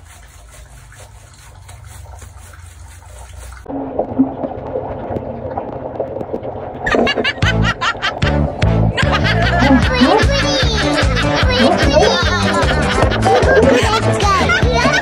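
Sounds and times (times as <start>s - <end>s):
wet fur being scrubbed: 0.0s - 3.7s, 9.9s - 15.0s.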